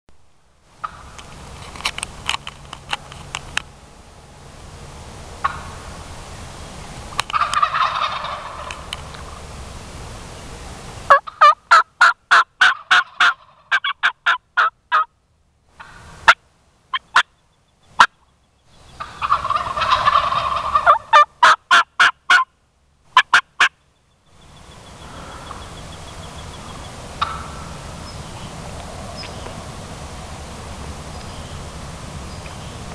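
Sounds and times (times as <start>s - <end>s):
turkey gobbling: 0.8s - 1.2s, 5.4s - 5.9s, 7.3s - 9.0s, 11.1s - 15.1s, 15.8s - 17.4s, 19.0s - 22.5s, 23.2s - 23.8s, 25.0s - 28.2s.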